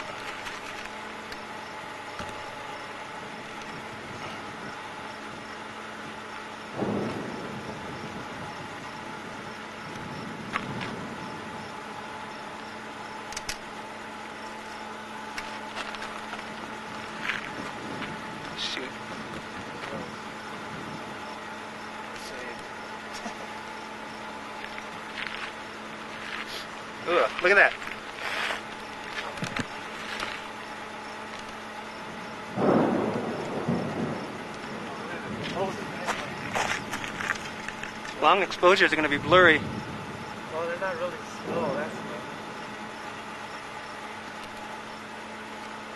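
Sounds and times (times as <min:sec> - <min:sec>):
steady low hum: 0:00.0 - 0:45.9
wind noise on microphone: 0:03.1 - 0:12.1, 0:16.9 - 0:21.4, 0:32.0 - 0:40.7
sharp clicks: 0:13.2 - 0:13.7.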